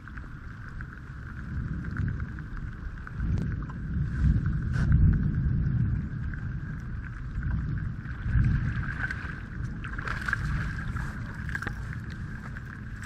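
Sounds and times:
faint steady whine: 0:00.0 - 0:13.0
wind and water rumble: 0:00.0 - 0:13.0.

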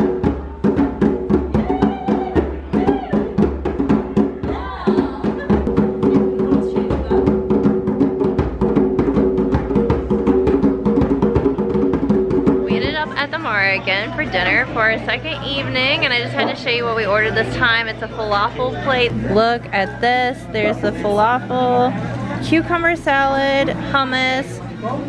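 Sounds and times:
djembe drums played by hand: 0:00.0 - 0:13.4.

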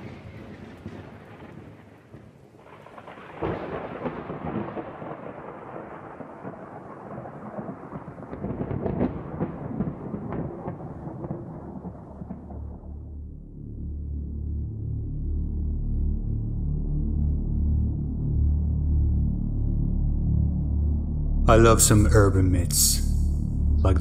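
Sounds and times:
crackling thunder-like rumble: 0:00.0 - 0:15.0.

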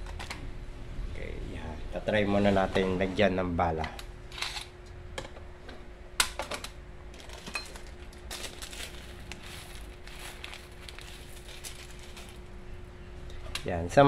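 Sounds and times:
faint steady hum: 0:00.0 - 0:14.0
plastic bbs rattling: 0:07.2 - 0:12.5.

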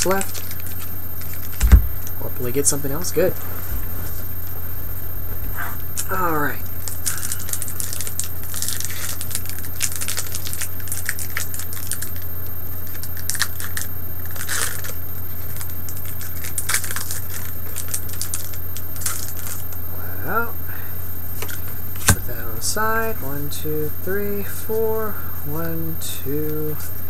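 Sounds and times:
foil wrapper crinkling: 0:00.0 - 0:02.2, 0:06.7 - 0:19.8
low electrical hum: 0:00.0 - 0:27.0.

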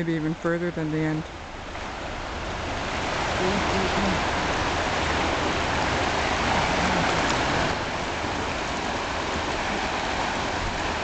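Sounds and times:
river rushing: 0:00.0 - 0:11.0.

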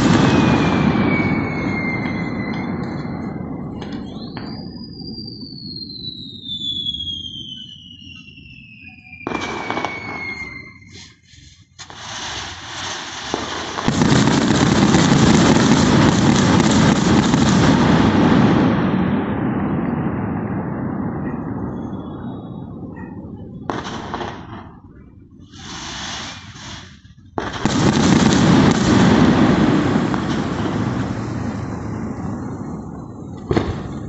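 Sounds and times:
firework pops: 0:00.0 - 0:04.8, 0:32.2 - 0:34.0
firework whistle falling in pitch: 0:00.0 - 0:11.4
fireworks crackling: 0:00.0 - 0:34.0.

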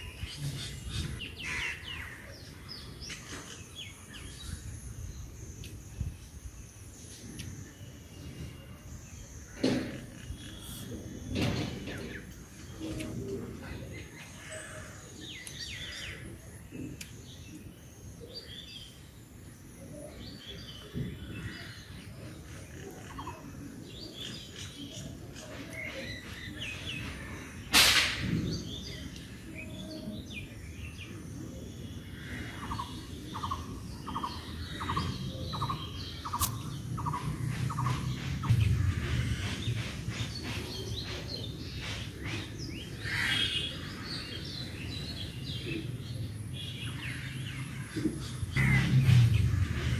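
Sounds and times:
small birds chirping: 0:00.0 - 0:49.9
sharp click: 0:27.7 - 0:28.3, 0:36.3 - 0:36.7
low hum: 0:36.5 - 0:41.1, 0:47.7 - 0:49.9.

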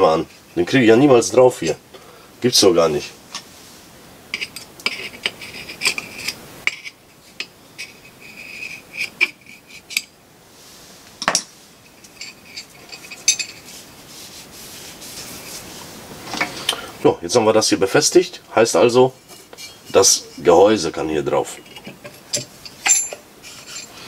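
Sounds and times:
metal-on-metal scraping: 0:04.3 - 0:10.1, 0:11.2 - 0:13.9, 0:19.1 - 0:24.0.

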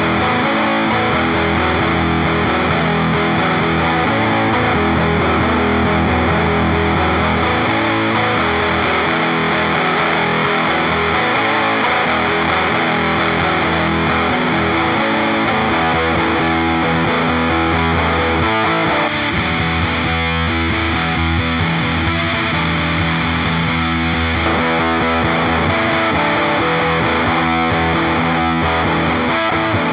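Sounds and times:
distorted fuzz electric guitar: 0:00.0 - 0:29.9.

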